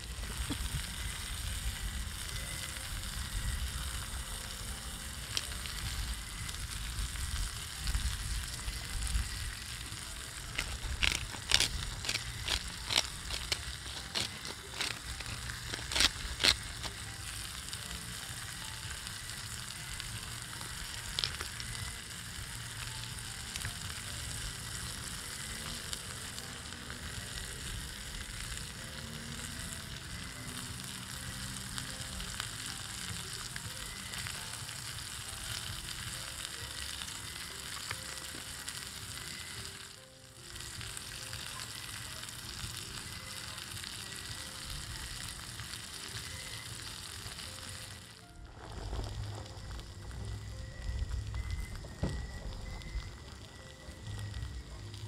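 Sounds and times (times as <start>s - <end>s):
fish sizzling in a skillet: 0.0s - 55.0s.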